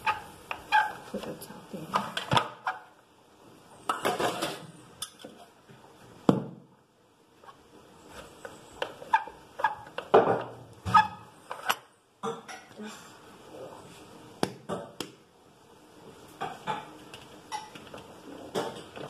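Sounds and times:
pots and pans clattering: 0:03.9 - 0:05.3, 0:17.5 - 0:19.0.

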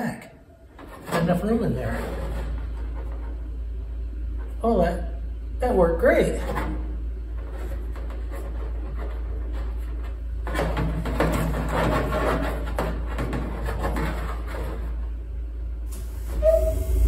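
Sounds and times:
low hum: 0:00.0 - 0:17.0
metal scraping and rattling: 0:00.6 - 0:03.6, 0:06.3 - 0:15.2.

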